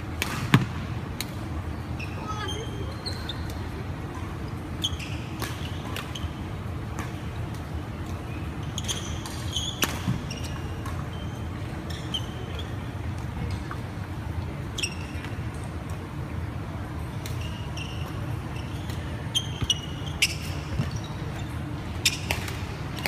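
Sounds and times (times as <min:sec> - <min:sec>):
low hum of large hall: 0:00.0 - 0:23.0
rackets striking shuttlecock: 0:00.2 - 0:01.4, 0:22.1 - 0:23.0
shoes squeaking on floor: 0:08.7 - 0:12.8, 0:17.4 - 0:22.3.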